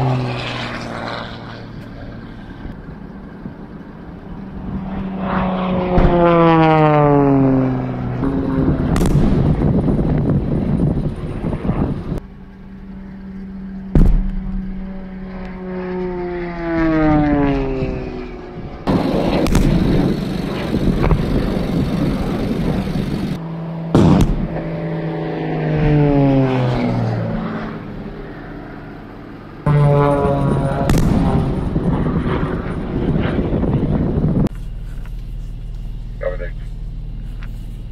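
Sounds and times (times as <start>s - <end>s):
aircraft passing overhead: 0.0s - 37.9s
pyrotechnic explosions: 4.7s - 12.2s, 13.9s - 15.1s, 18.8s - 24.8s, 29.7s - 34.5s.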